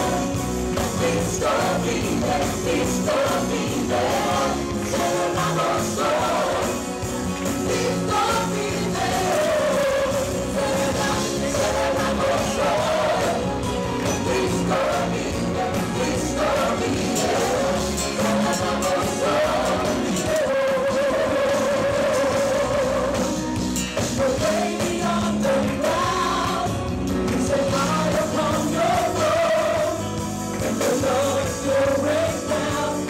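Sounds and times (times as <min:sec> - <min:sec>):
band with guitar and keyboard: 0:00.0 - 0:33.0
group of singers singing: 0:00.0 - 0:33.0.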